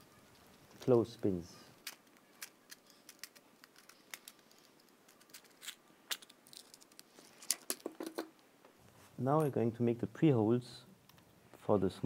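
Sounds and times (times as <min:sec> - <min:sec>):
plastic packaging clicks and crinkles: 0:01.7 - 0:08.3.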